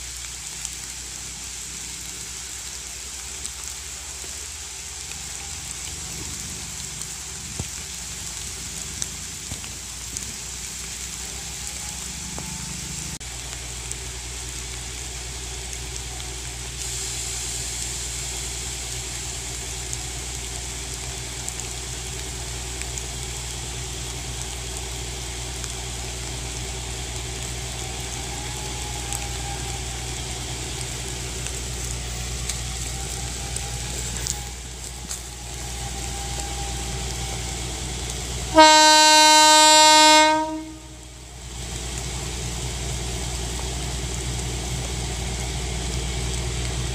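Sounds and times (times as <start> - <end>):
locomotive rumble: 0.0 - 46.9
steady rain hiss: 0.0 - 46.9
locomotive horn: 11.1 - 13.2, 38.4 - 41.2.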